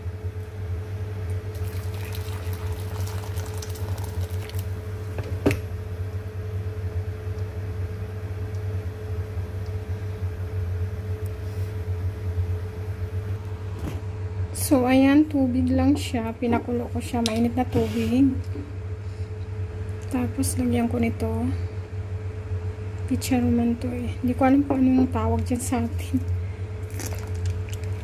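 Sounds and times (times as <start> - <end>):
low steady hum: 0.0 - 28.0
water pouring into bowl: 1.5 - 4.8.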